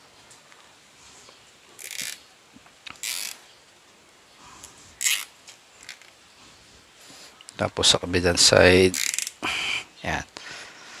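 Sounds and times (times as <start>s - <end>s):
cable tie zipping tight: 1.8s - 2.2s, 3.0s - 3.4s, 5.0s - 5.3s.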